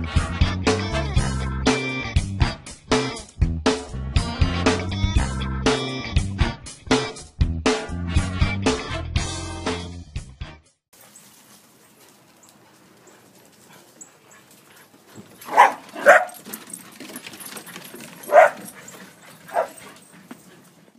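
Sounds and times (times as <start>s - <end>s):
dog barking: 13.1s - 20.5s.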